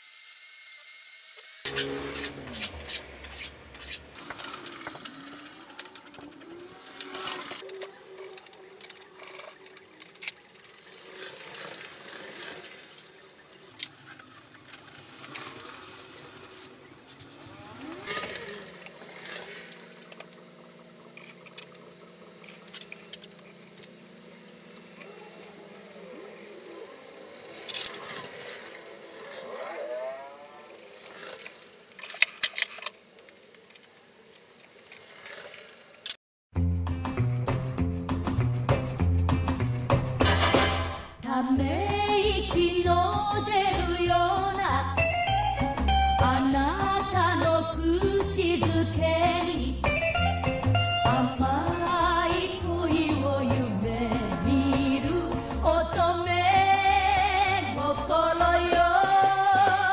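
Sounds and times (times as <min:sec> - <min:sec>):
file rasping on metal: 0:01.6 - 0:04.9
metal clinks and knocks: 0:01.7 - 0:06.3.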